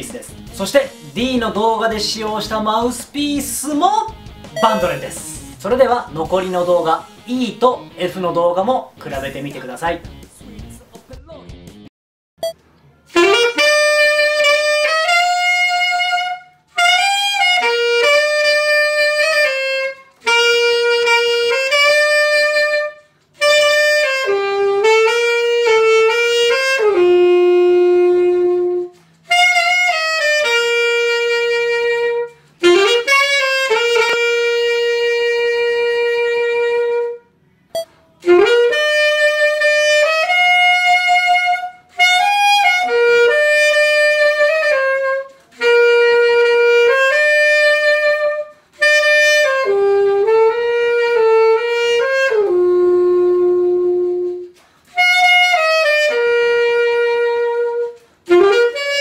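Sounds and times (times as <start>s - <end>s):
solo saxophone melody: 13.1s - 59.0s.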